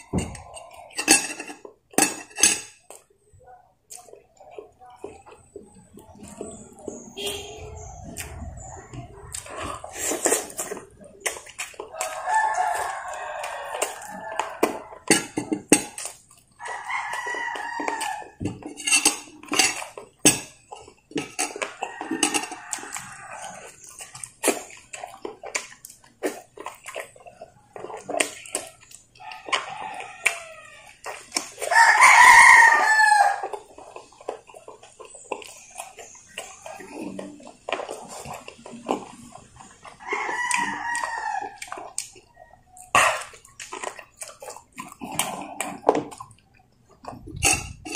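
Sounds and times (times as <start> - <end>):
chewing and lip-smacking: 2.7 - 47.9
roosters crowing: 11.8 - 15.4, 16.6 - 18.7, 21.4 - 23.8, 29.1 - 33.7, 39.8 - 43.2.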